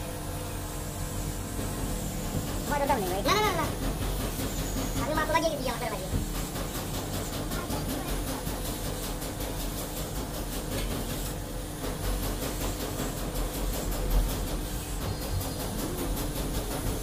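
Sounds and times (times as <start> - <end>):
mechanical rumble and hiss: 0.0 - 17.0.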